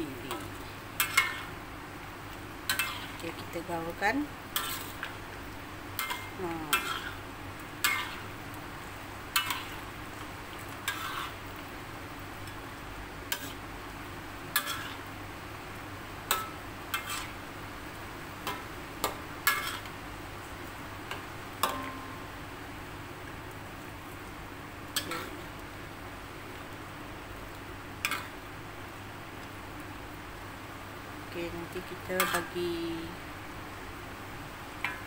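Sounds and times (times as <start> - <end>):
low hiss: 0.0 - 35.0
metal spatula scraping wok: 0.3 - 1.6, 2.7 - 5.2, 6.0 - 8.3, 9.3 - 9.9, 10.8 - 11.4, 13.3 - 13.6, 14.6 - 15.0, 16.3 - 17.4, 19.4 - 19.9.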